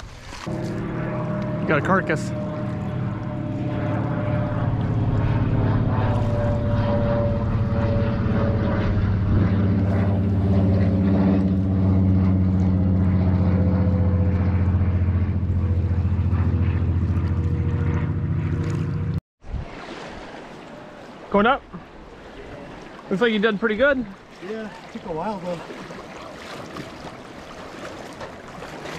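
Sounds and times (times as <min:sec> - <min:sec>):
engine drone: 0:00.0 - 0:19.2.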